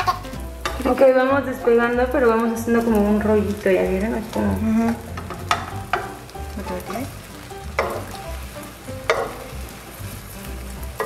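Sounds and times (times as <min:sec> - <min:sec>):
egg sizzling in a pan: 0:00.0 - 0:11.0
light background music: 0:00.0 - 0:11.0.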